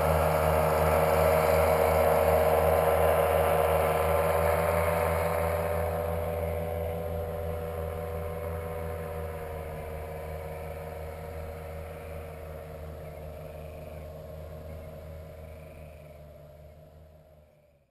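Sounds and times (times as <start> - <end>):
paramotor engine droning: 0.0 - 17.9.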